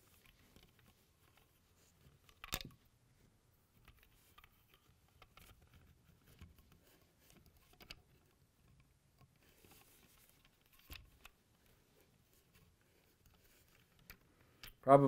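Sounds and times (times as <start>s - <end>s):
plastic toy parts clicking: 2.2s - 2.8s.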